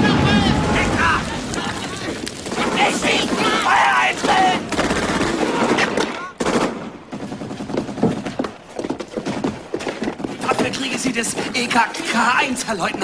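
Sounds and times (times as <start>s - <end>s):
submachine gun fire: 2.5s - 8.0s.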